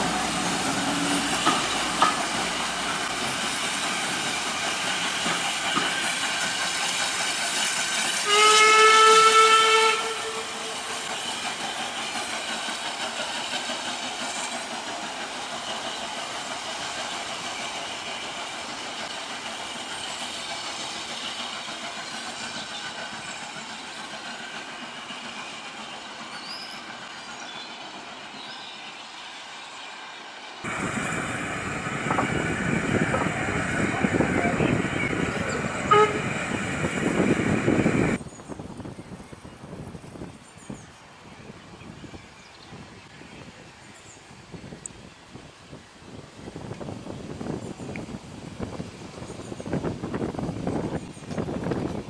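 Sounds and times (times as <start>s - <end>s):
train running on rails: 0.0s - 52.0s
steam locomotive whistle: 8.1s - 11.1s, 33.8s - 37.3s.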